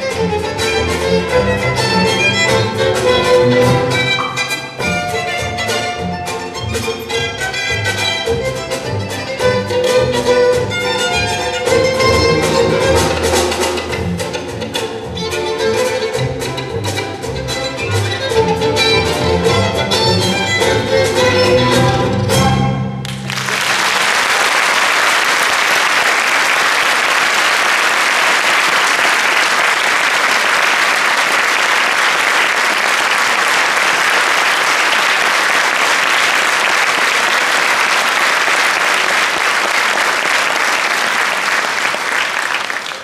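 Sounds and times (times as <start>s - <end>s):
audience applause: 23.0s - 43.0s.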